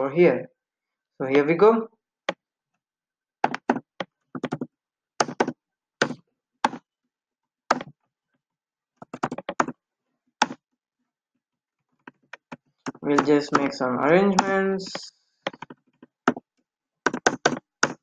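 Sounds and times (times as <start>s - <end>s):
computer keyboard typing: 4.4s - 6.8s, 9.0s - 9.7s.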